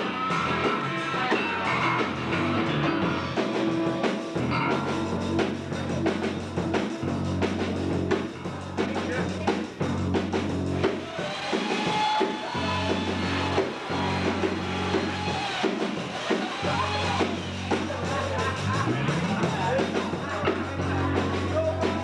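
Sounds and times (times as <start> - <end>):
electric guitar: 0.0 - 8.8
drum kit strikes: 0.0 - 22.0
electric bass: 0.0 - 22.0.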